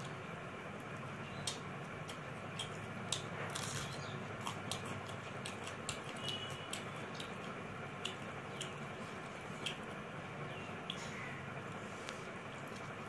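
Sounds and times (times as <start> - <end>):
eating by hand clicks and taps: 0.8 - 10.0, 10.8 - 11.1.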